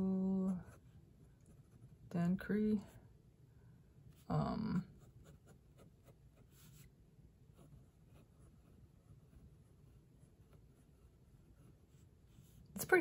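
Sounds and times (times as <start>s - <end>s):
person speaking: 4.1s - 5.1s, 12.4s - 13.0s.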